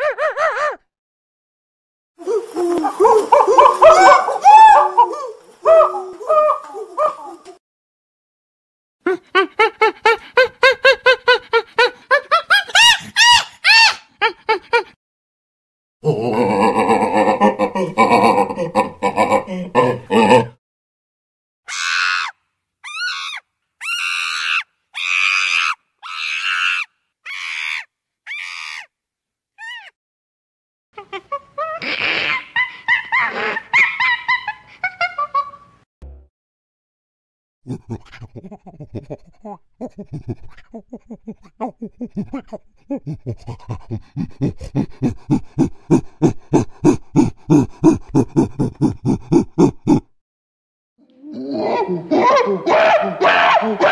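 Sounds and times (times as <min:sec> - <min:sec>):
chimpanzee screaming: 0:00.0 - 0:00.8, 0:02.3 - 0:07.5, 0:12.6 - 0:14.3, 0:21.7 - 0:28.9, 0:29.6 - 0:30.0, 0:51.4 - 0:53.9
chimpanzee panting calls: 0:09.1 - 0:14.9, 0:37.7 - 0:50.1.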